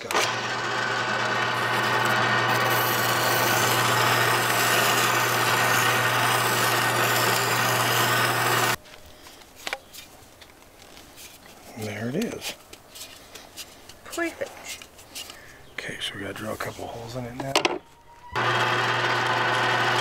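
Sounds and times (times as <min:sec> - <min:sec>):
drill press motor hum: 0:00.0 - 0:08.8, 0:18.4 - 0:20.0
sanding drum scraping metal: 0:00.9 - 0:08.8.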